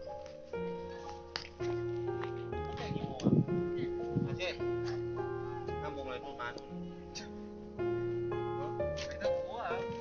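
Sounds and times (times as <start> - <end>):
background music with held notes: 0.0 - 10.0.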